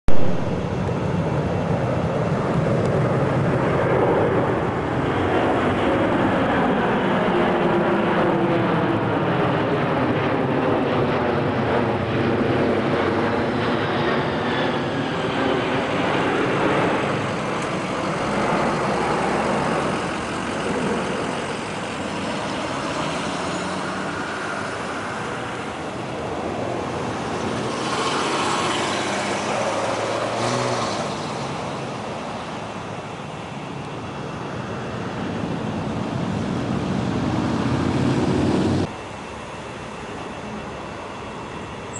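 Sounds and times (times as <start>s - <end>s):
jet plane flying overhead: 0.1s - 41.9s
motorcycles on a road: 12.7s - 39.0s.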